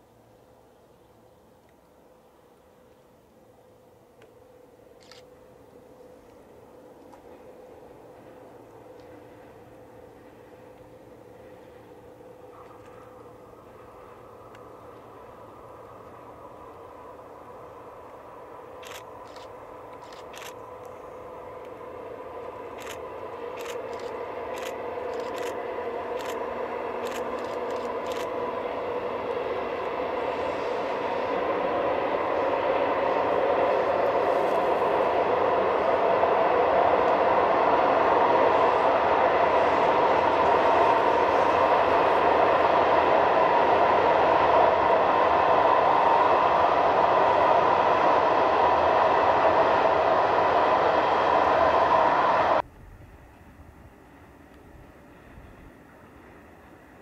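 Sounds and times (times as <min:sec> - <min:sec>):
freight train passing: 0:00.0 - 0:57.0.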